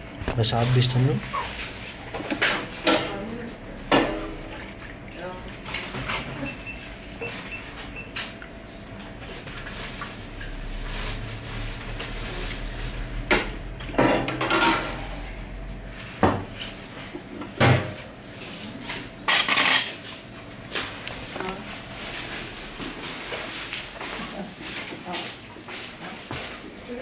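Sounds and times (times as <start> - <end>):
dishes clattering and clinking: 2.1 - 3.2, 13.3 - 15.2, 18.8 - 20.1.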